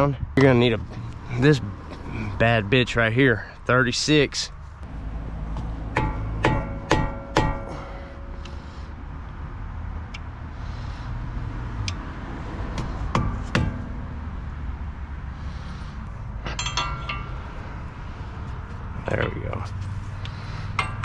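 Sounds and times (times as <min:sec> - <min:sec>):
hammer tapping on metal: 0:05.5 - 0:08.6, 0:12.8 - 0:13.9, 0:20.7 - 0:21.0
metal tools clinking: 0:16.4 - 0:17.5.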